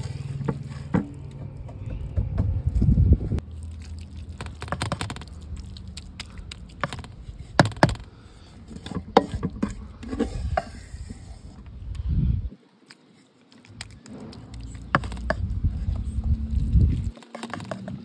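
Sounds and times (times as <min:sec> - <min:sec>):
low rumble: 0:00.0 - 0:03.8, 0:14.1 - 0:17.1
wooden spoon scraping a pot: 0:08.6 - 0:11.6.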